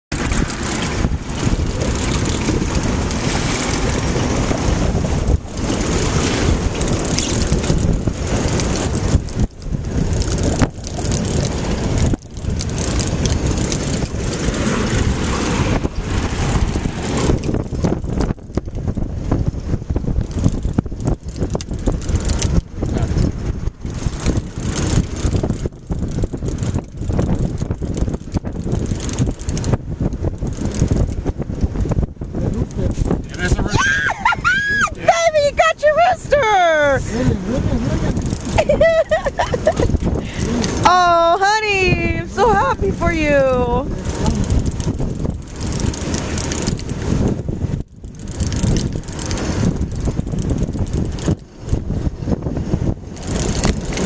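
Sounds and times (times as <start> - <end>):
wind buffeting microphone: 0.1 - 54.0.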